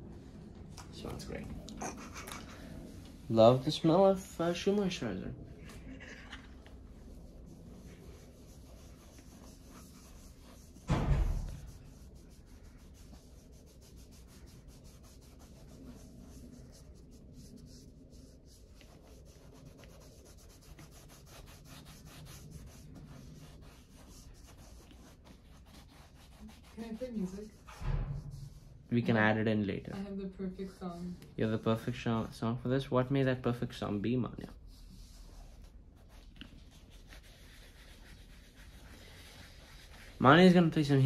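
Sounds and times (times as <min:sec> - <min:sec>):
sponge rubbing on leather boot: 0:05.9 - 0:28.9, 0:34.5 - 0:41.0
thump: 0:10.8 - 0:11.8, 0:27.6 - 0:28.8.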